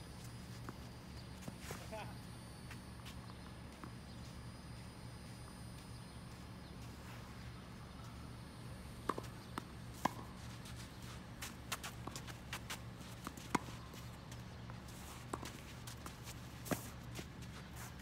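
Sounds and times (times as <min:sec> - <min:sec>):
steady low hum: 0:00.0 - 0:18.0
tennis ball bouncing: 0:09.0 - 0:10.4, 0:11.7 - 0:14.1, 0:15.3 - 0:16.9.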